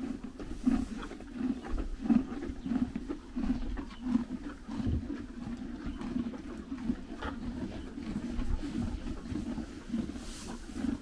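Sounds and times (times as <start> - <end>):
horses chewing hay: 0.0 - 11.0
hay rustling: 10.1 - 10.7.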